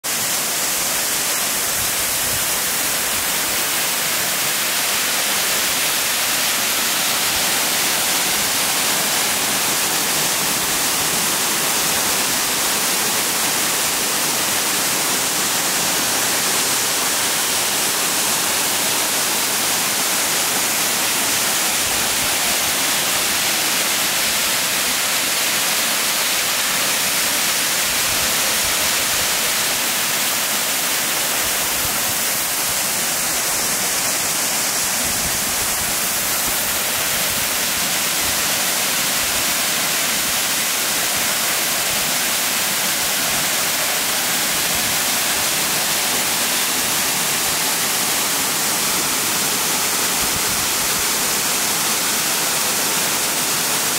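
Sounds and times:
waterfall splashing onto rocks: 0.0 - 53.9.

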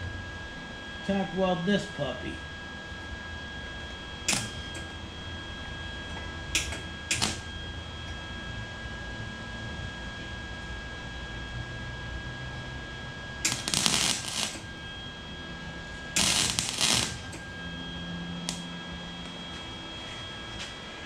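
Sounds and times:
arc welding bursts: 4.2 - 5.0, 6.5 - 7.5, 13.4 - 14.7, 16.1 - 17.5, 18.4 - 18.7.

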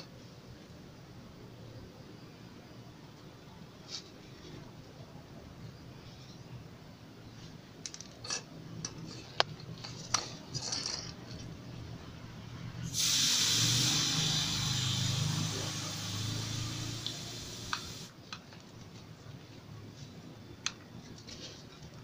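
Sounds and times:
air hissing at tyre valve: 12.9 - 18.1.

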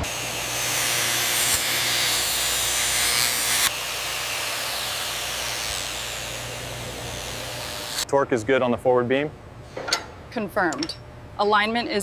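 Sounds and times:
angle grinder grinding steel: 0.0 - 8.0.

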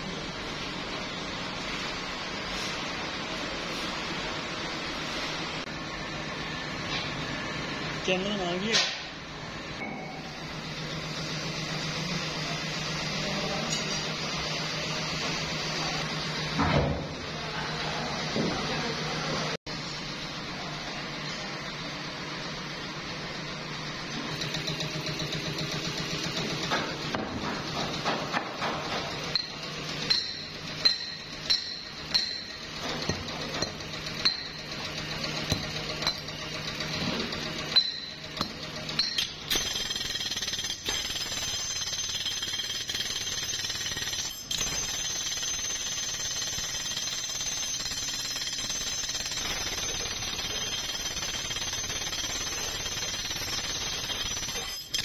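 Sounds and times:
machine humming: 0.0 - 47.6
thin high machine tone: 9.8 - 16.1, 29.2 - 55.0.

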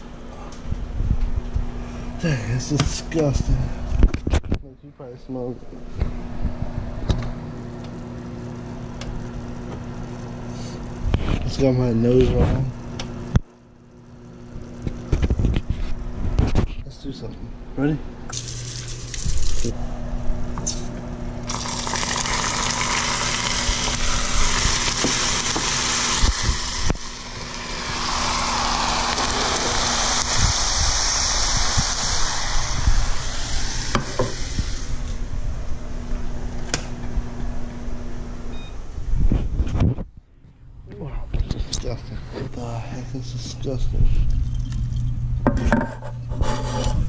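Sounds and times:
steady low hum: 0.0 - 47.0
boiling bubbling sizzle: 18.3 - 19.7, 21.4 - 35.2.

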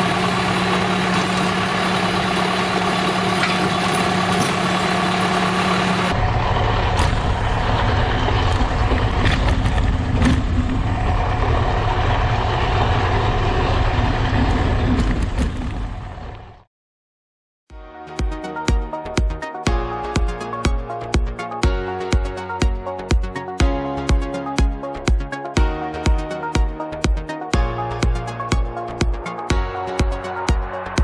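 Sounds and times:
earth auger boring into ground: 0.0 - 16.5
tractor engine running: 0.0 - 16.7, 18.7 - 31.0.

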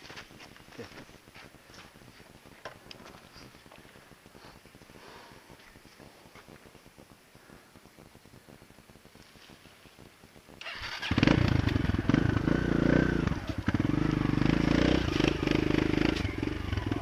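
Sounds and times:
motorbike engine revving: 10.6 - 17.0.

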